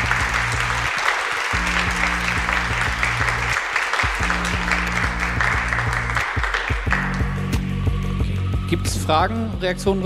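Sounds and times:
electronic music with bass line: 0.0s - 0.9s, 1.5s - 10.0s
audience applause: 0.0s - 7.6s.

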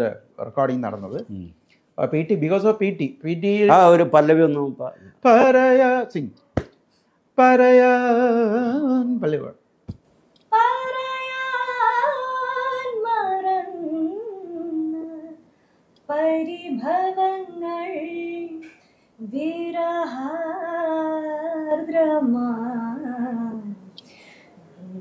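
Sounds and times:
woman singing unaccompanied: 10.5s - 15.4s, 16.1s - 24.0s, 24.8s - 25.0s.

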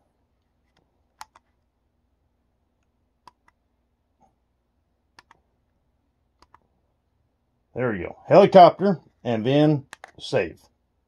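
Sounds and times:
push buttons clicking: 1.2s - 1.5s, 5.2s - 5.4s, 6.4s - 6.6s, 9.9s - 10.2s.

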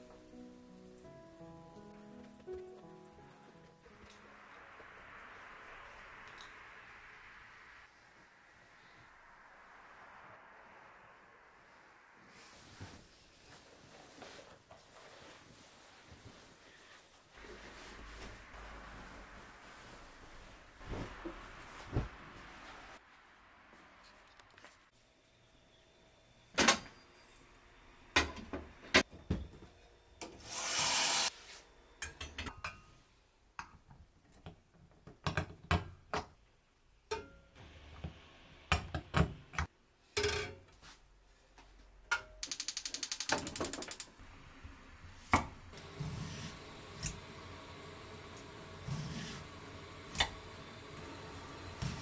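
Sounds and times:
short rush of noise: 3.8s - 14.4s.

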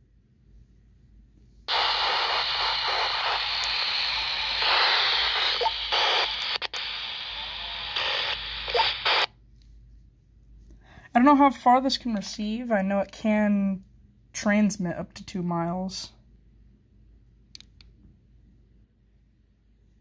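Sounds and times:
walkie-talkie static hiss: 1.7s - 9.3s.

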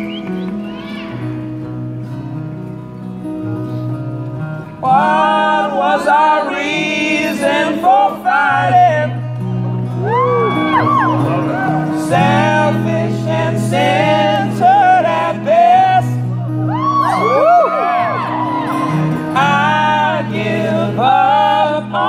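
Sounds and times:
acoustic guitars strummed: 0.0s - 22.0s
men singing: 4.8s - 9.3s, 11.5s - 16.3s, 18.8s - 22.0s.

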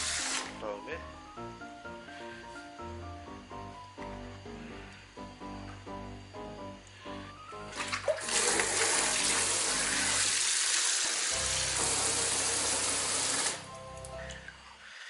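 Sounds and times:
faucet water splashing into basin: 7.7s - 13.6s.

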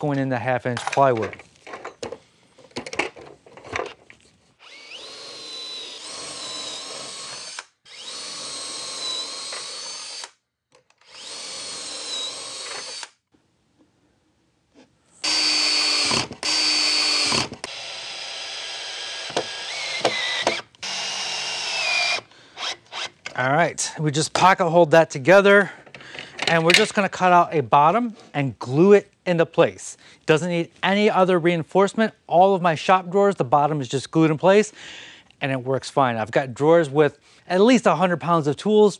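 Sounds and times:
cordless drill whining: 4.6s - 13.2s, 15.2s - 23.3s.

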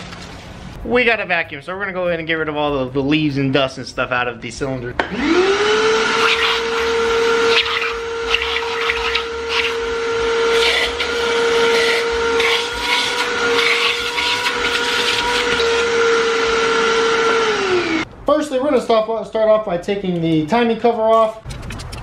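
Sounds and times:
vacuum motor whine: 5.0s - 18.0s.

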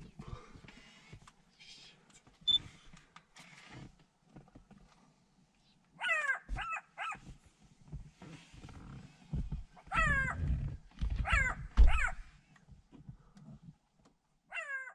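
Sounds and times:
jackal yelping: 6.0s - 7.2s, 9.8s - 10.6s, 11.2s - 12.2s, 14.5s - 14.9s
low rumbling thumps: 9.3s - 12.3s.

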